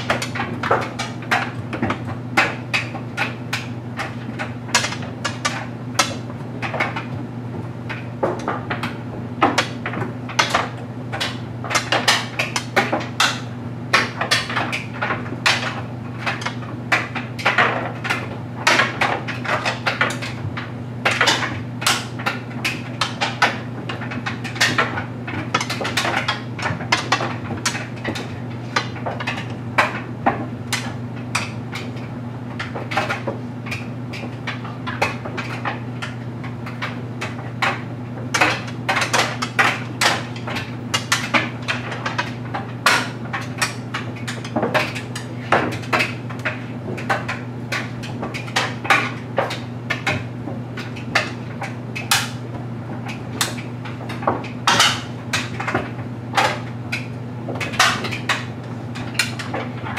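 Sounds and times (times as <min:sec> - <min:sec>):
clothes dryer humming: 0:00.0 - 0:59.9.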